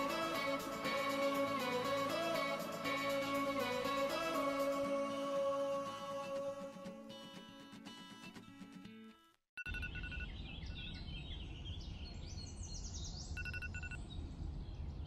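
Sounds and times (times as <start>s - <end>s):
music: 0.0s - 9.3s
birds chirping and singing: 10.3s - 13.4s.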